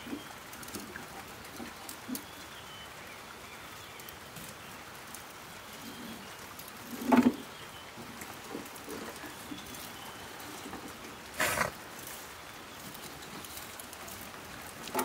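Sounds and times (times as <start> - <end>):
wood fire crackling: 0.0 - 15.0.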